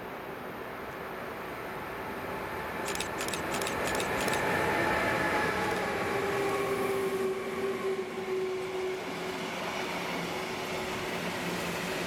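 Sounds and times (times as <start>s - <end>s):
freight train passing: 1.3s - 12.0s
sharp high ticks: 2.8s - 4.5s.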